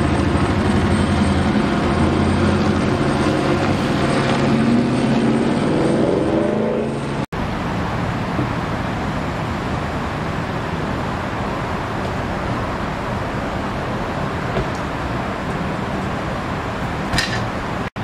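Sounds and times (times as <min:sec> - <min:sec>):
street traffic: 0:00.0 - 0:18.0.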